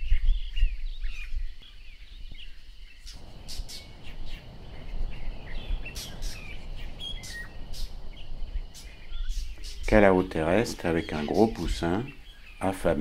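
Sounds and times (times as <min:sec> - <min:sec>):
small birds chirping: 0:03.0 - 0:13.0
steady background hiss: 0:03.1 - 0:13.0
low rumble: 0:03.2 - 0:09.6.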